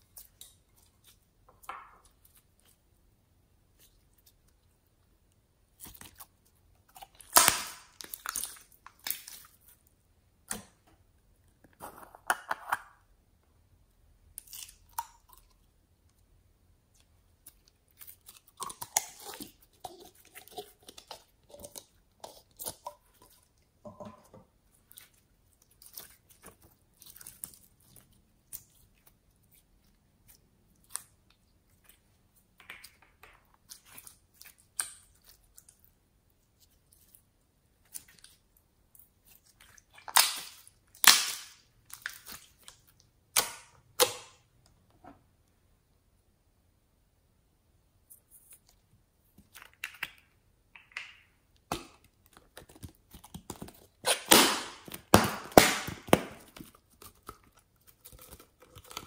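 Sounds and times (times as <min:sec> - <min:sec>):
slime squelching and popping: 0:03.7 - 0:10.9, 0:16.9 - 0:44.6, 0:48.0 - 0:59.0.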